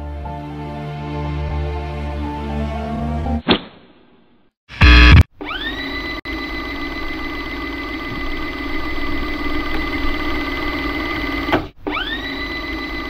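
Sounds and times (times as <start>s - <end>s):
whirring motor buzz: 4.7s - 13.0s.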